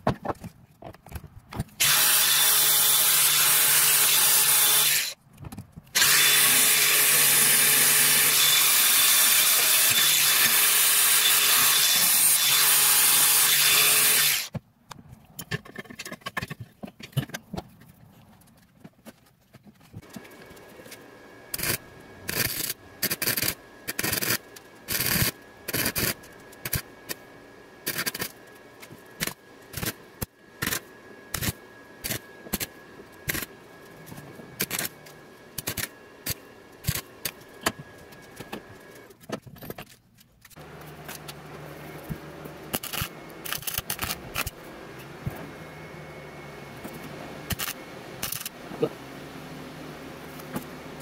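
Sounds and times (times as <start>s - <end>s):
welder arc crackling: 21.5s - 27.2s, 27.8s - 28.6s, 34.6s - 35.0s, 35.6s - 37.4s, 42.7s - 44.6s.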